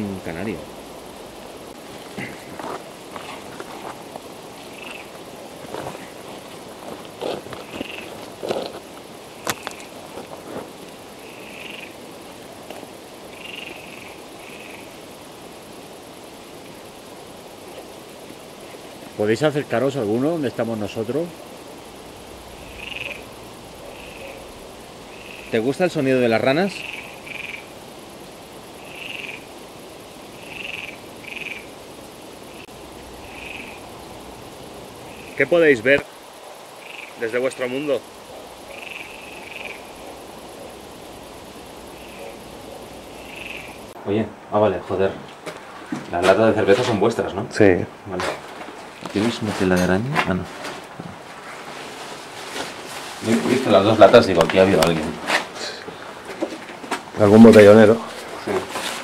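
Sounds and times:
frogs calling: 0.0 - 59.0
steady outdoor hiss: 0.0 - 59.0.

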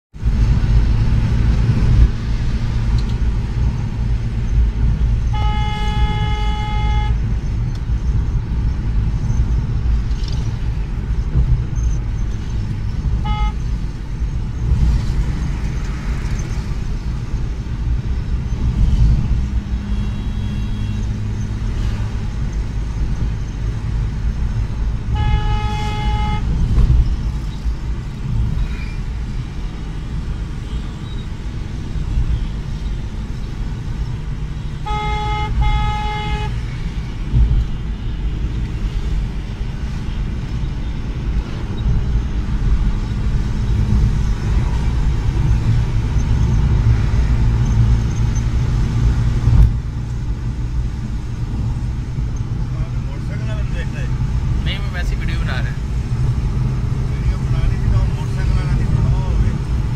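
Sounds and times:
car cabin engine and road rumble: 0.2 - 59.9
car horn honking: 5.2 - 7.2, 13.2 - 13.7, 19.9 - 21.1, 25.0 - 26.7, 34.6 - 36.6.

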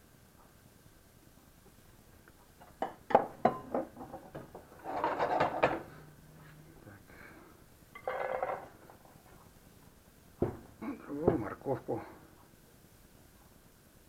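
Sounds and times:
cookware knocking: 2.8 - 5.9
scraping and rustling: 4.0 - 6.6.

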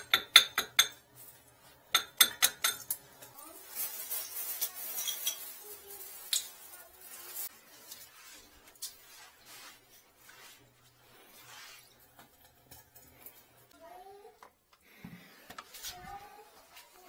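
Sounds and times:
plastic bag rustling: 3.3 - 11.8
scrubbing wet floor tiles: 3.4 - 12.6.

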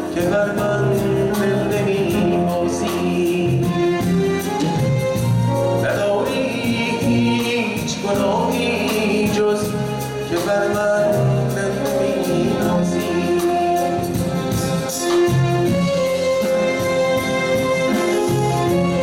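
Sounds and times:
man singing pop song: 0.0 - 4.1, 5.7 - 14.2
band accompaniment with steady beat: 0.0 - 19.0.

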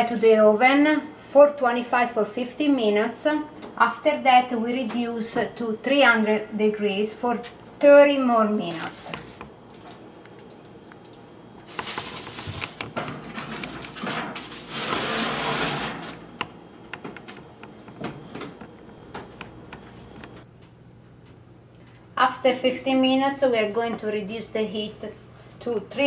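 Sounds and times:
foil crinkling: 8.6 - 10.6, 11.6 - 16.3
baking tray scraping on rack: 11.7 - 16.3.

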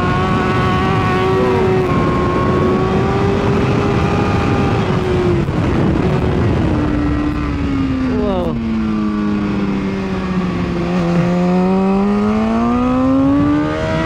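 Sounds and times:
heavy wind rush: 0.0 - 14.0
motorcycle engine at high revs: 0.0 - 14.0.

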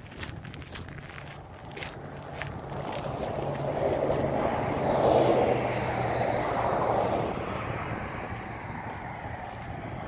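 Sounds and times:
vehicle passing: 0.9 - 10.0.

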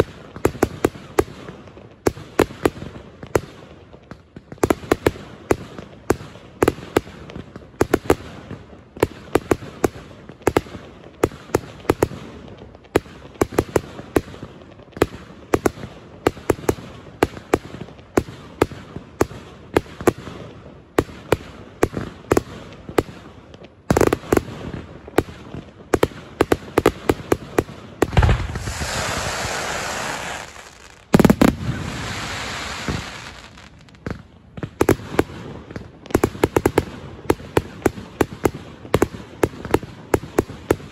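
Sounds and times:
fireworks crackling: 16.6 - 40.9
fireworks bangs: 23.9 - 40.9.

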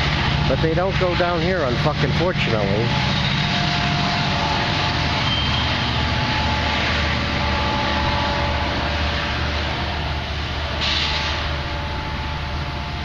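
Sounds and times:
diesel locomotive rumble: 0.0 - 13.0
hiss: 10.8 - 11.5.

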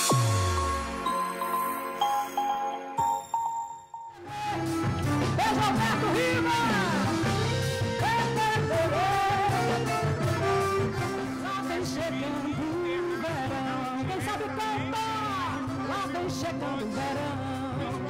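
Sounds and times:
live band music: 4.2 - 18.0
woman singing: 8.0 - 18.0.

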